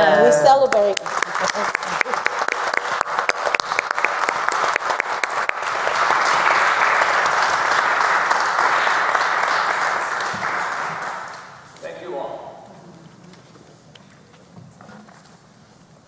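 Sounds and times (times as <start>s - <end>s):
congregation applauding: 0.6s - 12.4s.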